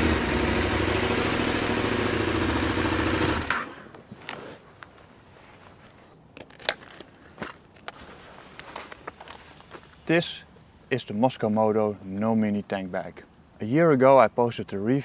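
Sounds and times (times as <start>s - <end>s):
motorcycle engine running: 0.0s - 3.7s
faint clicks and scuffs: 4.0s - 10.1s.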